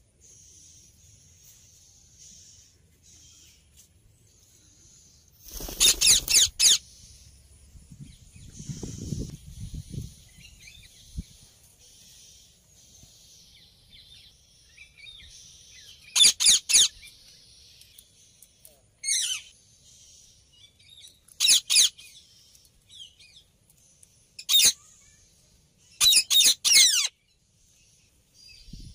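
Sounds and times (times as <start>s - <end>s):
parakeets screeching: 5.5s - 6.8s, 16.2s - 16.9s, 21.4s - 21.9s, 24.4s - 24.8s, 26.0s - 27.1s.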